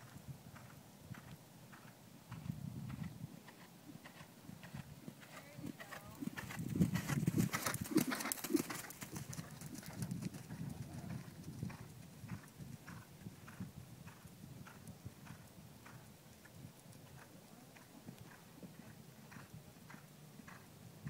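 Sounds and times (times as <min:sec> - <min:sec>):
horse hoofbeats on sand: 0:00.6 - 0:16.0.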